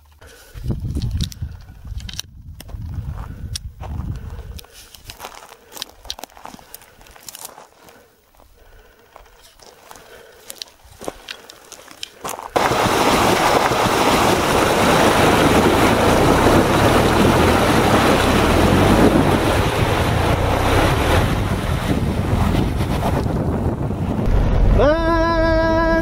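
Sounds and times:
wind on microphone: 0.5 - 4.7, 12.6 - 26.0
faint clicks and rustles: 3.5 - 12.6
tyres rolling on gravel: 3.8 - 23.3
tyres splashing through water: 12.5 - 23.2.

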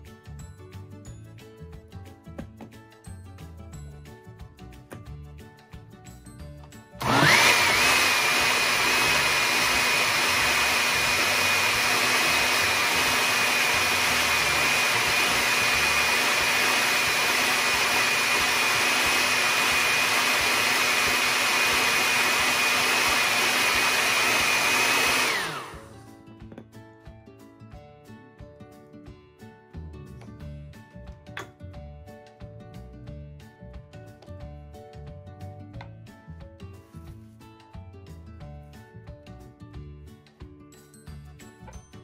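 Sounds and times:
blender motor whining: 7.0 - 26.0.

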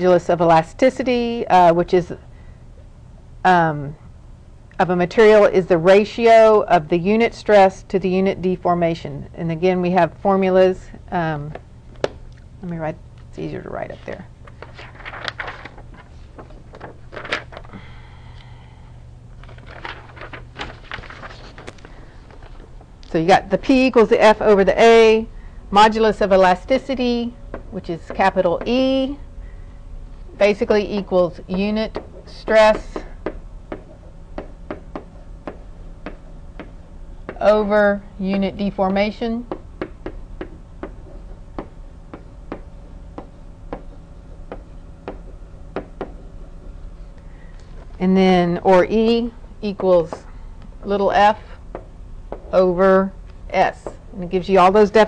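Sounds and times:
low electrical hum: 0.0 - 55.0
stylus tapping on whiteboard: 33.0 - 37.4, 38.3 - 41.0, 41.6 - 42.6, 43.2 - 43.9, 44.5 - 46.2.

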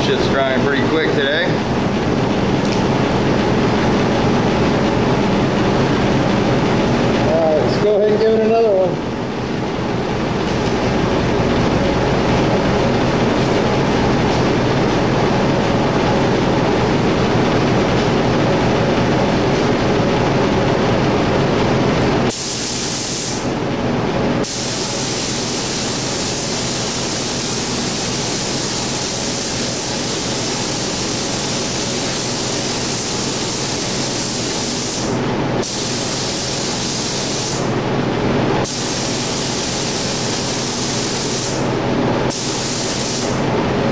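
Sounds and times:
machine drone: 0.0 - 22.4
paint spray gun hissing: 22.3 - 23.5, 24.4 - 37.7, 38.6 - 41.7, 42.3 - 43.4.

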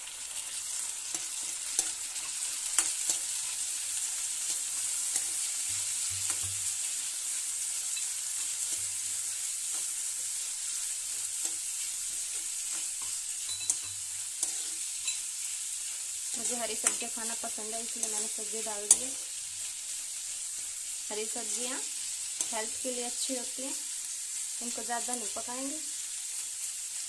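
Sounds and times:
vegetables sizzling in oil: 0.0 - 27.0
steel spoon scraping pan: 11.1 - 15.4, 16.3 - 19.4.

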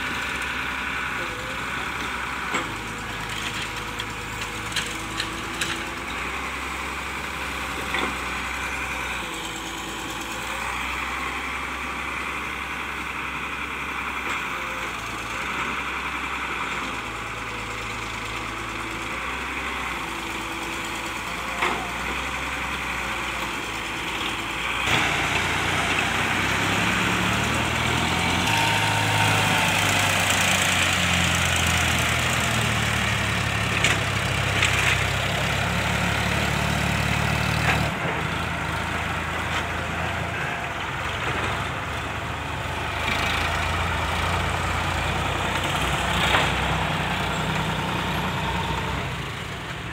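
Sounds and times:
diesel tractor engine running: 0.0 - 49.9
excavator diesel engine working: 0.0 - 49.9.

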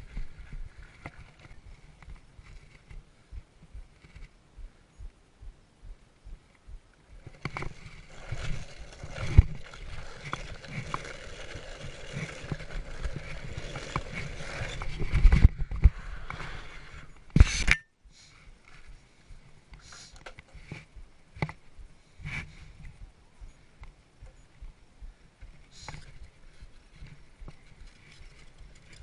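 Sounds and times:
board wheels rolling on dirt: 0.0 - 4.4, 7.2 - 17.5, 24.3 - 29.0.

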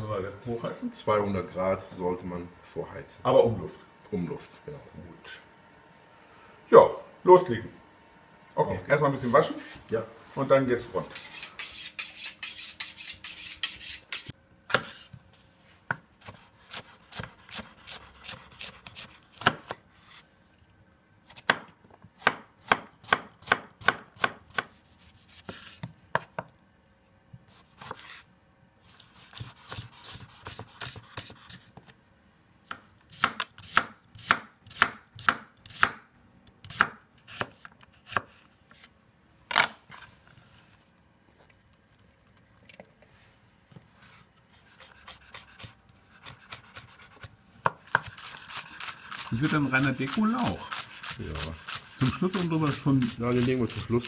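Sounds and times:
knife on sharpening steel: 11.0 - 14.3, 48.0 - 53.5
knife chopping on wooden board: 14.1 - 15.0, 15.9 - 19.8, 21.3 - 26.5, 29.2 - 31.6, 32.7 - 36.0, 36.6 - 38.4, 44.8 - 53.9.

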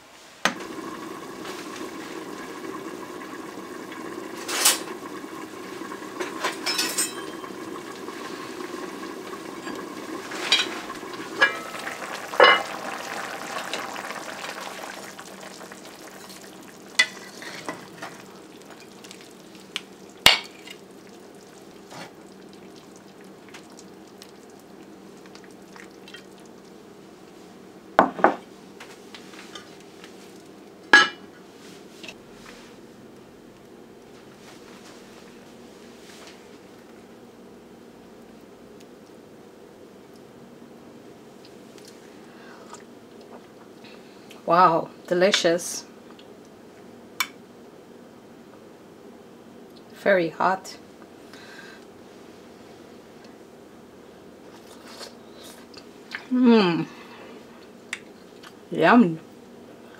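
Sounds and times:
soup bubbling in a metal pot: 0.5 - 27.4
metal spoon clanking on pot: 6.6 - 7.4.

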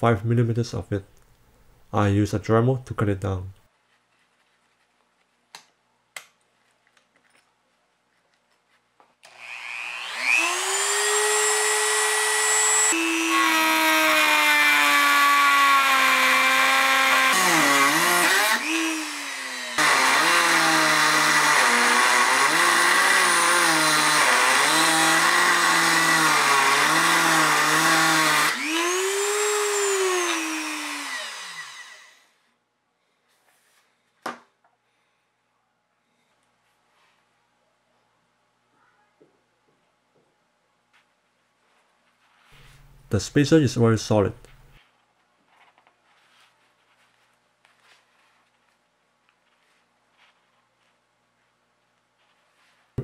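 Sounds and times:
rotary tool whining and cutting: 9.2 - 32.4.

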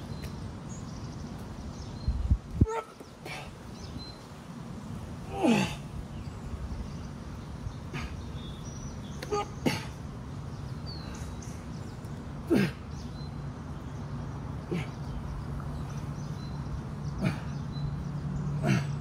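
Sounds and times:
person grunting with effort: 5.3 - 5.8.

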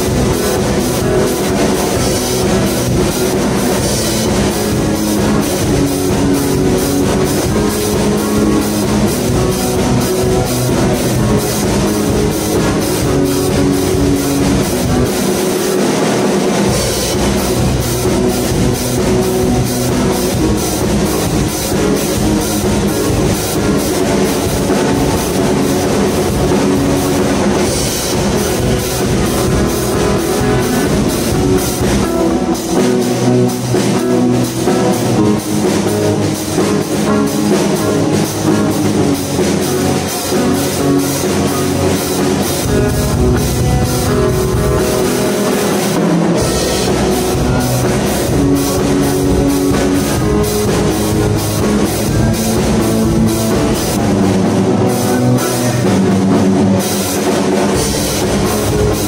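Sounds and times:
drum kit with cymbals: 0.0 - 59.0
electric guitar rock jam: 0.0 - 59.0.

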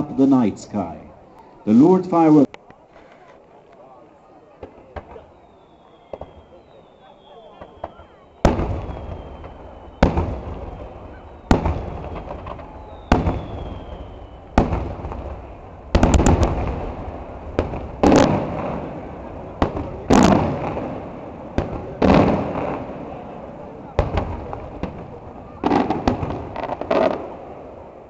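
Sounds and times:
fireworks bangs: 4.5 - 28.0
fireworks crackling: 4.5 - 28.0.

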